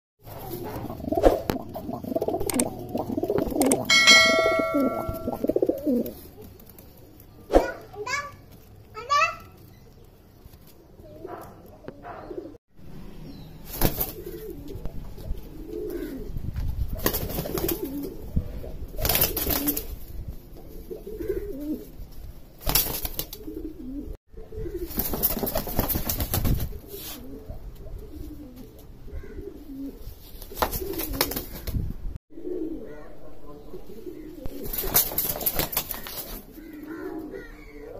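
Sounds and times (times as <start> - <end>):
pigeons cooing: 0.3 - 6.4, 11.0 - 12.6, 14.0 - 16.4, 17.0 - 19.8, 20.5 - 22.0, 23.3 - 25.1, 26.7 - 31.4, 32.3 - 37.9
rustling noises: 5.4 - 11.8, 26.3 - 27.4.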